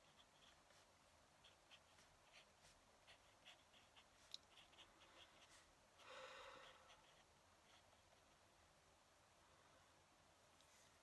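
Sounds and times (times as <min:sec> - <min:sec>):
pen nib scratching on paper: 0:00.0 - 0:05.8, 0:06.6 - 0:08.5.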